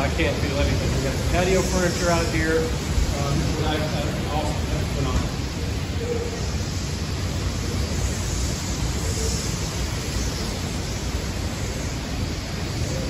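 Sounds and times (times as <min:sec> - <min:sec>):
hurricane wind and driving rain: 0:00.0 - 0:13.0.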